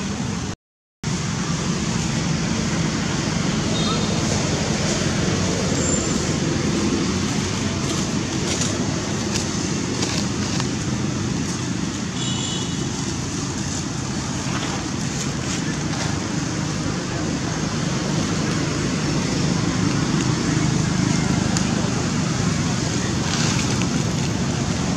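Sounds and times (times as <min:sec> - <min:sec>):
outdoor rumble and hiss: 0:00.0 - 0:24.9.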